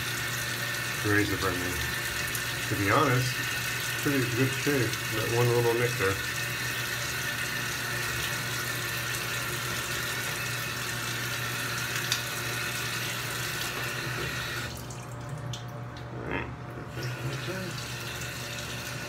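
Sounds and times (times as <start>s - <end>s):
tap running into sink: 13.6s - 14.8s.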